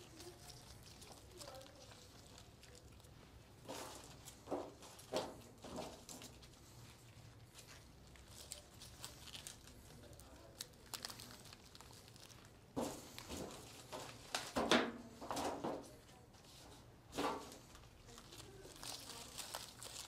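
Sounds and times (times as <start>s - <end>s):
flower stems rustling: 0.0s - 14.6s, 15.3s - 20.0s.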